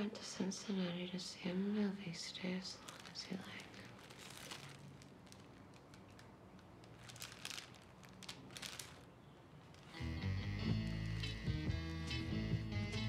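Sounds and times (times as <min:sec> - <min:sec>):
plastic bag crinkling: 0:02.3 - 0:12.1
guitar music: 0:10.0 - 0:13.0.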